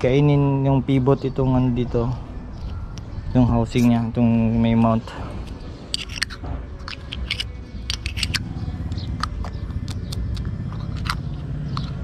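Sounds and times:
plastic and metal parts clicking: 5.9s - 12.0s.

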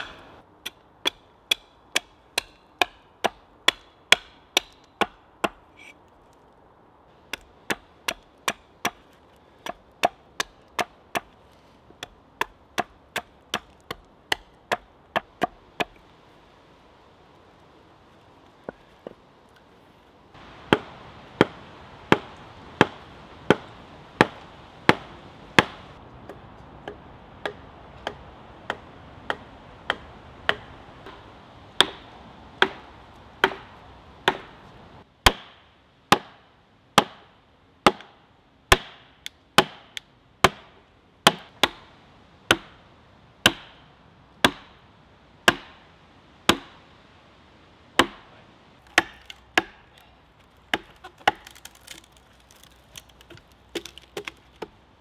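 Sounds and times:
axes striking wood: 33.4s - 34.5s, 48.8s - 49.9s, 50.7s - 54.8s.

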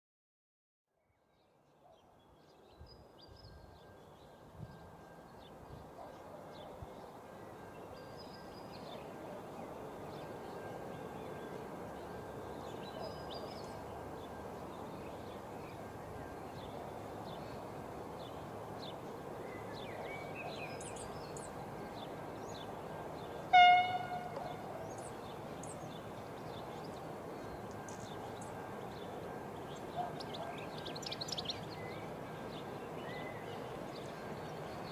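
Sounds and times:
train horn blast: 23.5s - 24.7s.

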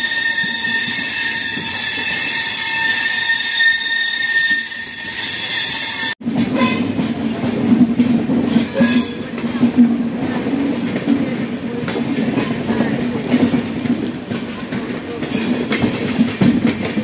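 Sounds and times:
train wheels squealing on rails: 0.0s - 7.0s, 8.6s - 9.4s
train rumbling: 0.0s - 17.0s.

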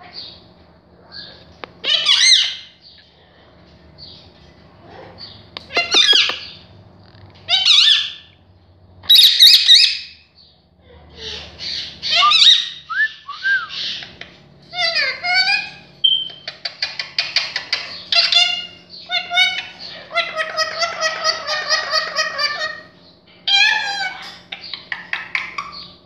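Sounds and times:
parakeet talking: 1.1s - 2.9s, 4.8s - 6.6s, 7.4s - 8.3s, 9.1s - 10.2s, 10.9s - 26.0s
parakeet sharp clicks: 5.5s - 6.5s.

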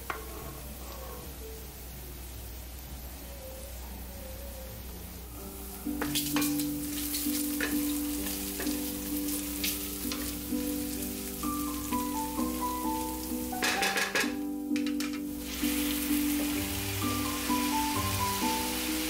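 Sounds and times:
soft background music: 0.0s - 19.0s
bacon sizzling in a skillet: 5.6s - 14.6s, 15.2s - 19.0s
spoon scraping and tapping pan: 6.0s - 8.9s, 13.5s - 15.3s.

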